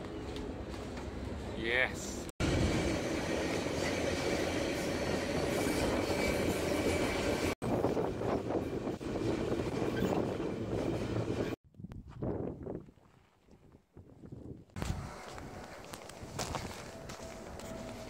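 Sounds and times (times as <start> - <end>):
freight train rumble and rattle: 0.0 - 11.6.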